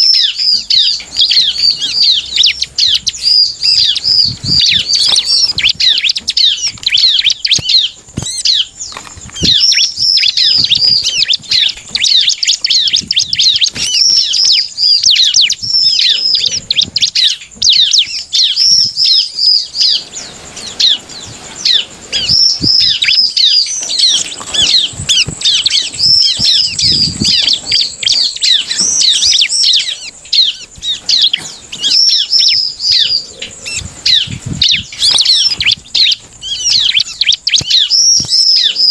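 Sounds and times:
bird singing chattering song: 0:00.0 - 0:38.9
bird flapping in cage: 0:03.6 - 0:14.5, 0:19.8 - 0:32.1, 0:33.6 - 0:36.9.

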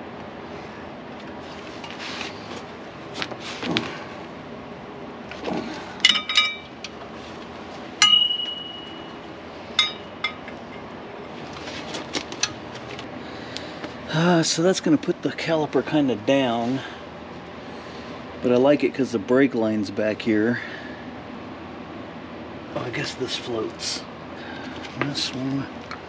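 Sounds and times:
steel tools clinking on metal: 0:06.1 - 0:06.7
soft handling noise: 0:24.6 - 0:25.6.

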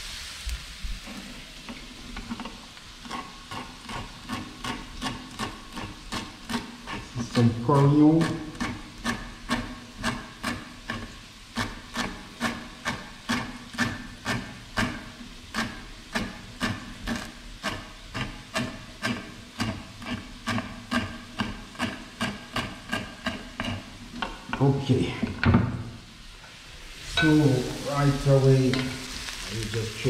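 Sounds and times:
knife chopping on wooden board: 0:07.7 - 0:24.4.

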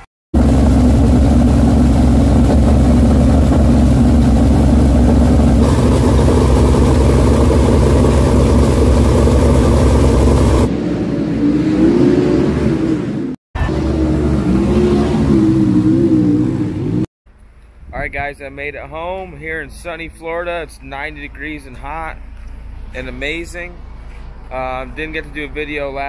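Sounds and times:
engine revving: 0:00.0 - 0:17.1
loud race car engine: 0:00.4 - 0:17.1.

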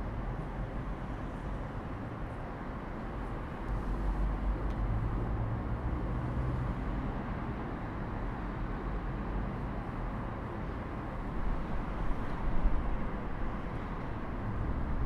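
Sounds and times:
distant traffic hum: 0:00.0 - 0:15.0.

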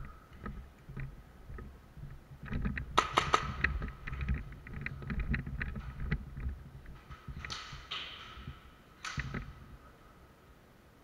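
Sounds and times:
footsteps: 0:00.0 - 0:09.9
gear rattling: 0:02.4 - 0:09.6
airsoft gun firing: 0:03.0 - 0:03.6.

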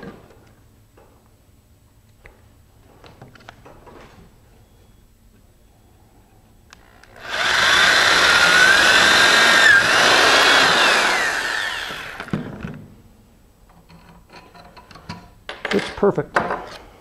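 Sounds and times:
electric drill whining: 0:06.8 - 0:12.5.

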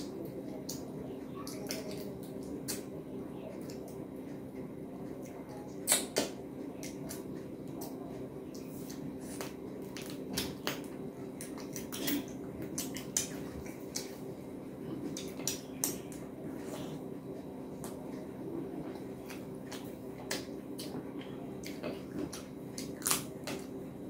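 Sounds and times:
steady low hum: 0:00.0 - 0:24.0
mouth chewing and lip smacks: 0:05.1 - 0:14.2.

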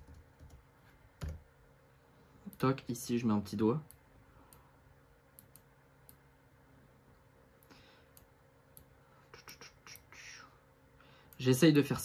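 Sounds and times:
computer mouse clicks: 0:05.3 - 0:06.2.

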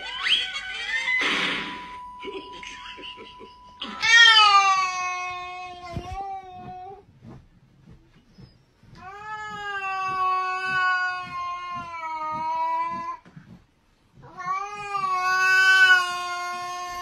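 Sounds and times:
cat yowling: 0:03.8 - 0:06.9, 0:14.3 - 0:17.0.

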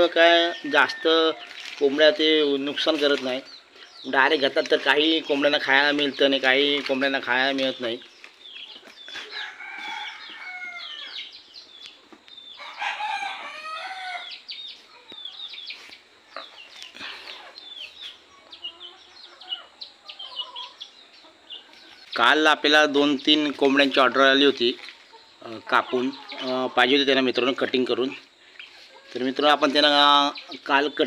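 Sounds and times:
chickens clucking: 0:00.0 - 0:31.0
rooster crowing: 0:09.3 - 0:11.2, 0:12.6 - 0:14.4.

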